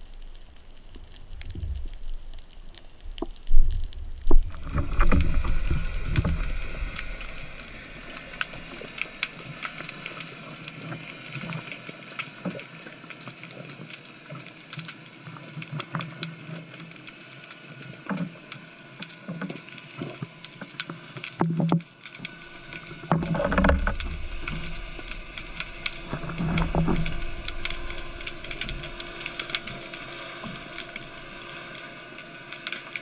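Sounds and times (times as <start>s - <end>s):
low rush of water: 0.0s - 10.7s, 22.2s - 33.0s
steady underwater hiss: 0.0s - 33.0s.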